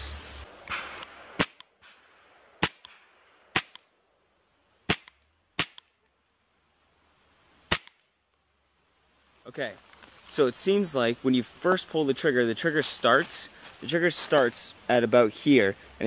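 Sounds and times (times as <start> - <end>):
airsoft pistol shots: 0.7 - 1.6, 3.6 - 3.8, 4.9 - 5.8, 7.7 - 8.0.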